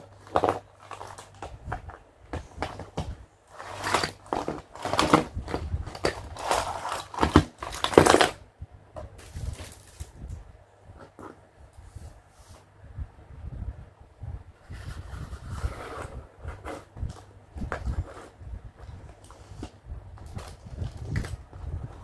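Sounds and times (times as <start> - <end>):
plastic packaging crinkling: 0.0 - 8.4, 9.2 - 10.4, 19.0 - 22.0.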